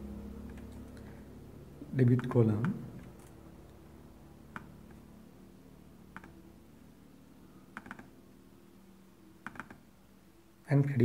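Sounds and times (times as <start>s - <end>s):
low steady hum: 0.0s - 11.0s
computer mouse clicks: 4.5s - 5.0s, 6.1s - 6.4s, 7.7s - 8.1s, 9.4s - 9.8s.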